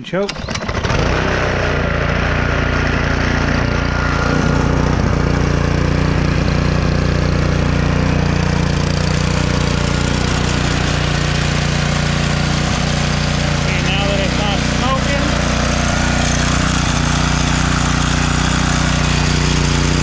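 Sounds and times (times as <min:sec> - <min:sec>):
pressure washer engine running: 0:00.3 - 0:20.0
water spraying: 0:03.9 - 0:20.0.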